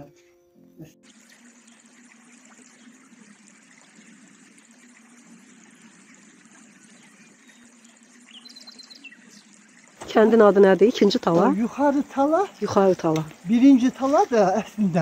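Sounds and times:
faint rushing water: 1.0s - 15.0s.

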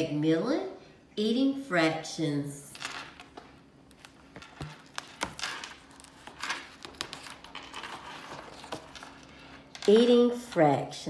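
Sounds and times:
book pages turning: 3.4s - 9.2s.

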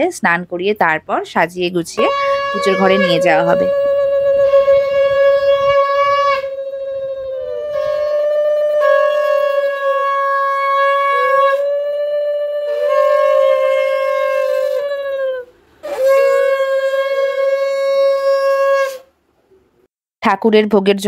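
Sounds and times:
conch shell blasts: 2.0s - 11.7s, 12.6s - 14.8s, 15.8s - 19.1s.

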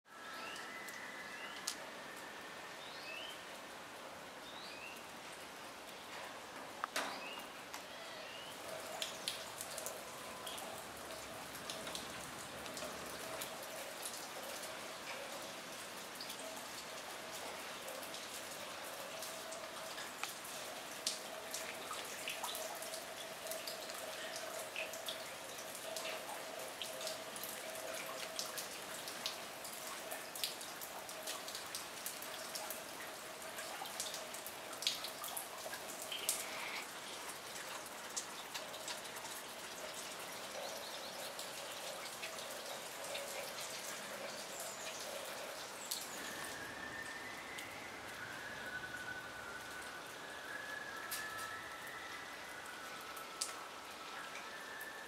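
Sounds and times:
steady rain: 0.1s - 55.0s
drops dripping onto puddles: 0.5s - 1.9s, 8.5s - 55.0s.

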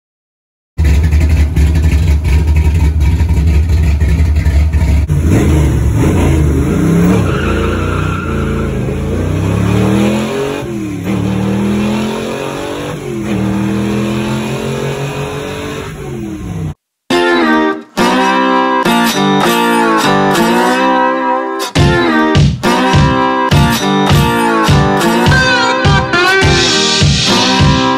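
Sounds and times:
car engine accelerating: 0.8s - 16.8s.

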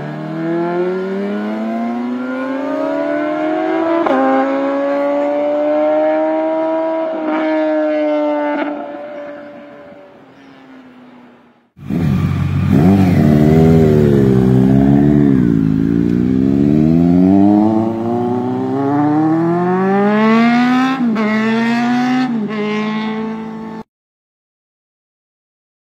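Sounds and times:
motorcycle engine revving: 0.0s - 10.1s, 11.8s - 23.8s.

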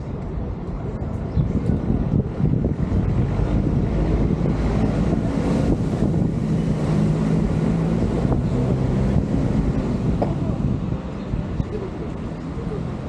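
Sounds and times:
engine droning: 0.0s - 13.0s
wind buffeting microphone: 0.0s - 13.0s.

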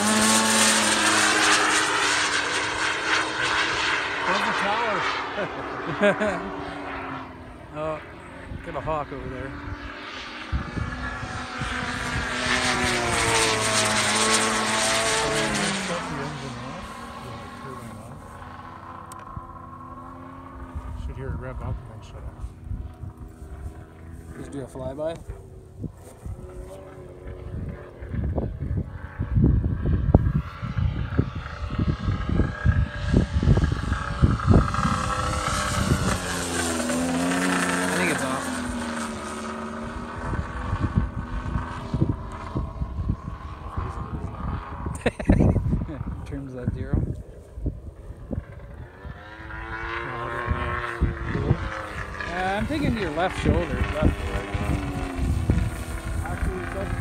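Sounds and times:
engine steady drone: 0.0s - 57.0s
model jet flying past: 0.0s - 57.0s
wind buffeting microphone: 8.3s - 57.0s.

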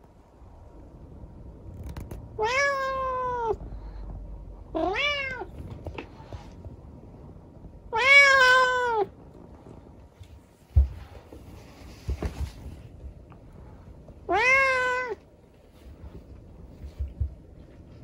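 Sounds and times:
cat meowing: 2.4s - 3.6s, 4.7s - 5.6s, 7.9s - 9.1s, 14.3s - 15.2s.

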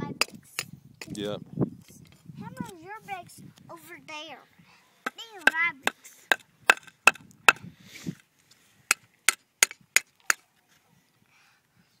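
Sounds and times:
hammer striking bricks: 5.4s - 7.6s.

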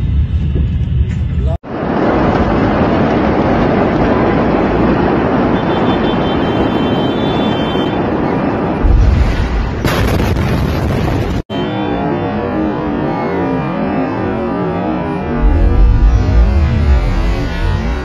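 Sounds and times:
steady loud rushing noise: 0.0s - 18.0s
deep explosion boom: 8.6s - 11.5s, 15.0s - 18.0s.

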